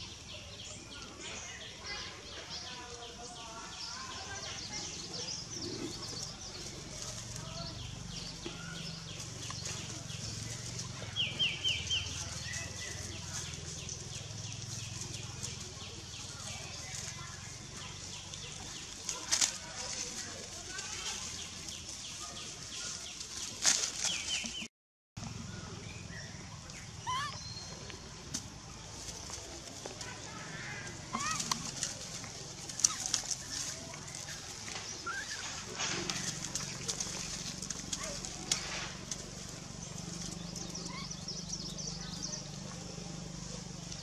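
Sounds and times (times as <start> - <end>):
rustle: 0.0 - 44.0
baby monkey squeaking cries: 27.0 - 27.4.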